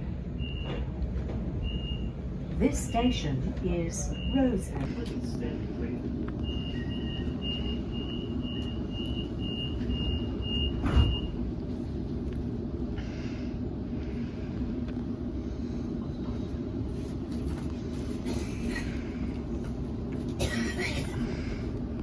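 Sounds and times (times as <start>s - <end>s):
train low hum: 0.0s - 22.0s
train doors shutting thud: 10.7s - 11.4s.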